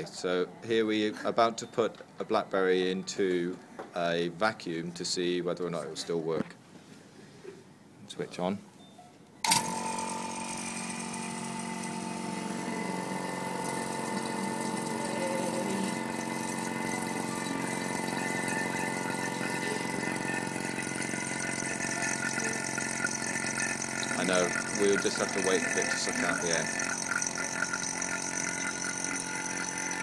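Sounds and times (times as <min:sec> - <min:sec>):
vacuum pump humming with whine: 0:09.4 - 0:30.0.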